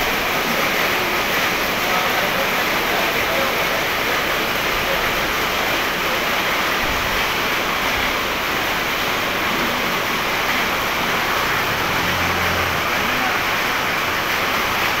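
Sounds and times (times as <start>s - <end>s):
rushing hiss of restaurant noise: 0.0s - 15.0s.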